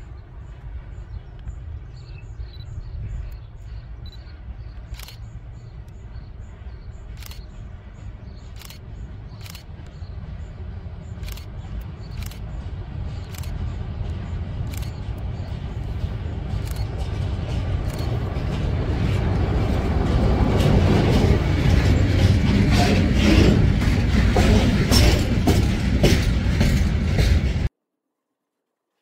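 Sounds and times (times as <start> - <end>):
freight train rumble: 0.0 - 27.7
sharp clicks: 4.1 - 6.0, 7.1 - 7.5, 8.5 - 8.8, 9.4 - 10.0, 11.2 - 12.5, 13.2 - 15.6, 16.5 - 17.2, 17.8 - 18.2.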